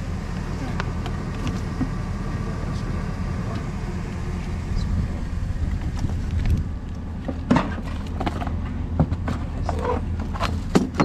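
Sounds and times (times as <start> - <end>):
vehicle engine idling: 0.0 - 11.0
items handled in metal trunk: 5.9 - 11.0.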